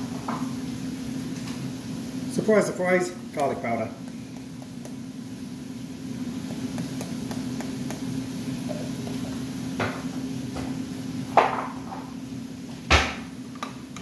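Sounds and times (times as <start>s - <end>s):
steady low hum: 0.0s - 14.0s
kitchen items knocking on counter: 11.4s - 12.0s.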